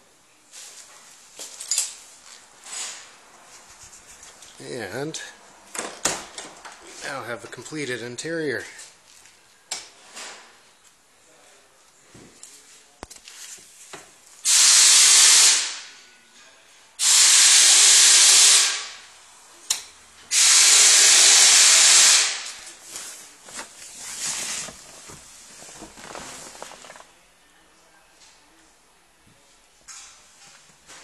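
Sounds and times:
loud hiss bursts: 14.4 - 15.9, 17.0 - 19.0, 20.3 - 22.6.

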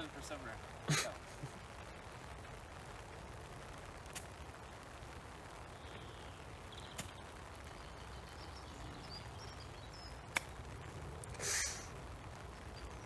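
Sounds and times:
faint bird chirps: 5.7 - 10.7.

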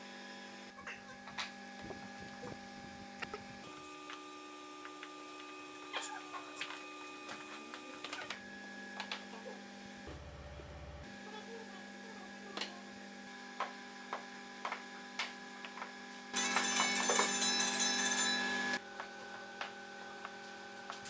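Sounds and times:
steady hum: 0.6 - 8.4.

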